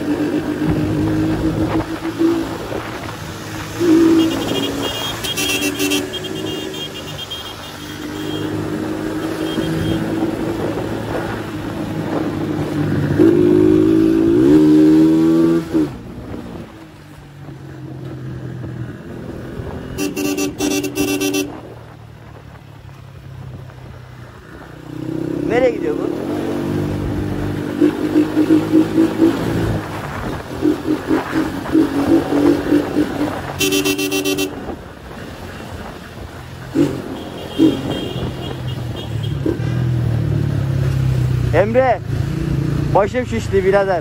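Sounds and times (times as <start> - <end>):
vehicle horn: 3.8 - 8.6, 9.3 - 10.1, 19.9 - 21.6, 33.6 - 34.7, 37.1 - 39.5.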